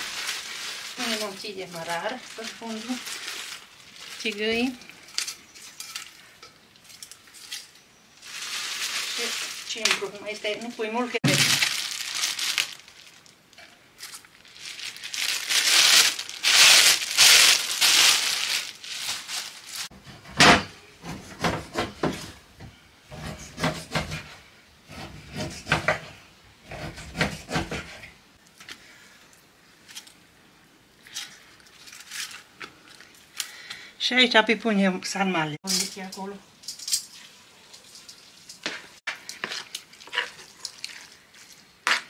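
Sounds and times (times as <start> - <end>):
crinkling rustle: 0.0 - 20.0, 30.9 - 33.7, 35.6 - 42.0.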